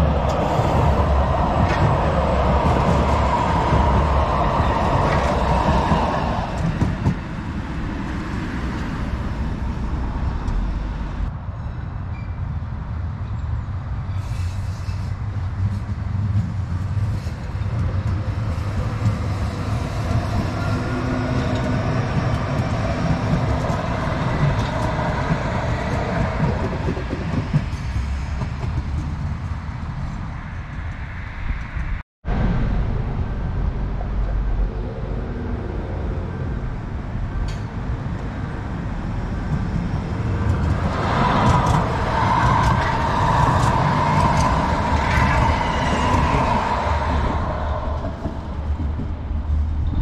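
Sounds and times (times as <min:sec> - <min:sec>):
tram wheels rumbling on rail: 0:00.0 - 0:50.0
wheels clicking over rail joints: 0:39.2 - 0:50.0.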